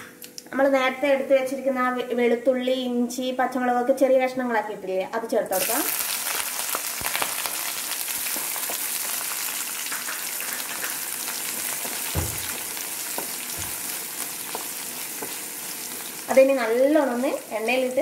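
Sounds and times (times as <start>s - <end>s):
food sizzling in hot oil: 5.5s - 18.0s
soft knocks: 12.1s - 12.6s
spatula stirring: 12.5s - 16.3s.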